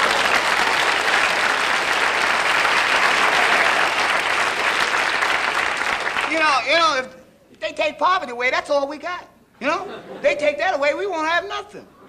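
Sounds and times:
studio audience applauding: 0.0 - 6.6.

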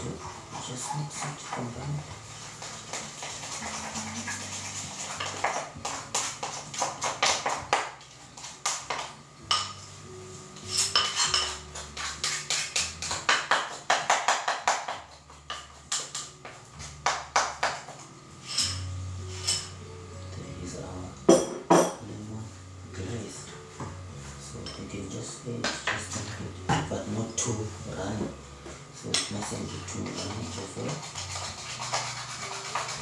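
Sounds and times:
quiet music: 0.0 - 33.0.

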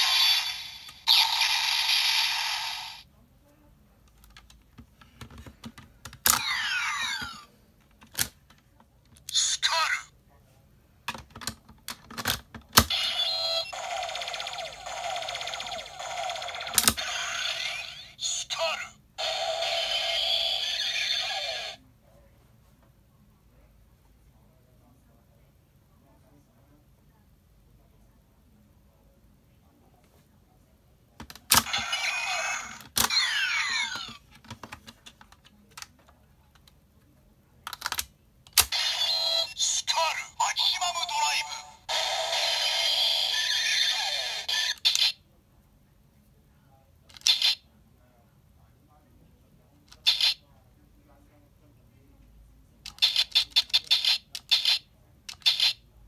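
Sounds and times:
toy electronic sound effect: 0.0 - 3.0, 6.3 - 7.4, 12.8 - 21.8, 31.5 - 34.2, 38.6 - 45.2
toy electronic looping tune: 12.9 - 17.4
plastic toy clicks: 13.9 - 17.4, 37.7 - 38.8, 52.9 - 55.8.

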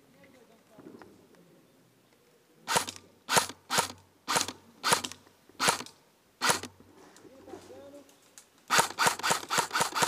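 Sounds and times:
airsoft gun shots: 8.7 - 10.0.

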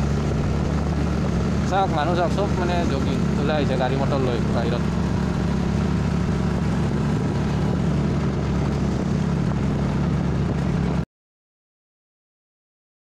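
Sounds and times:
road and wind noise: 0.0 - 11.0.

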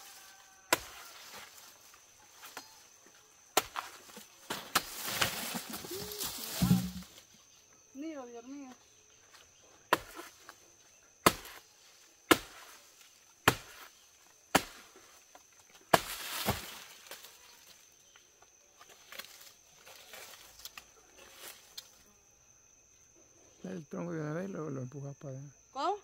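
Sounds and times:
high insect trill: 0.0 - 26.0
machete chopping plant trunk: 0.7 - 1.2, 3.6 - 5.8, 6.5 - 7.0, 9.9 - 10.4, 11.2 - 11.6, 12.3 - 12.8, 13.4 - 13.9, 14.5 - 14.9, 15.9 - 17.3
leaves rustling and knocks: 4.0 - 7.3, 16.0 - 17.8.

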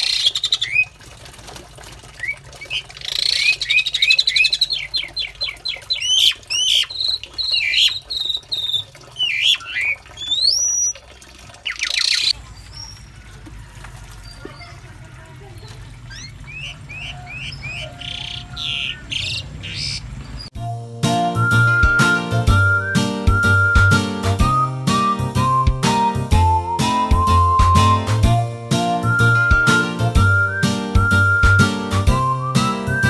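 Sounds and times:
starlings chirping and whistling: 0.0 - 0.9, 2.2 - 11.0, 11.7 - 13.1, 16.1 - 20.5.

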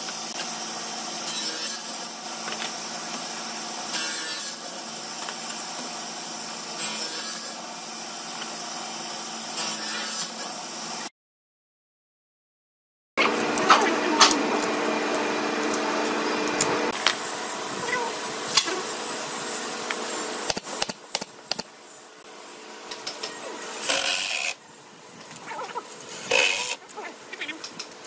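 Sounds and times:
pneumatic nailer shots: 20.4 - 21.7, 23.8 - 24.6, 26.2 - 26.8.

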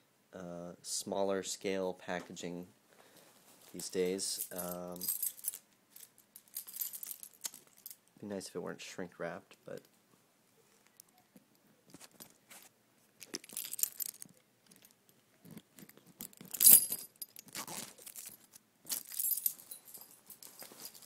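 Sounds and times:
plastic shrink wrap crinkling: 17.2 - 19.0.

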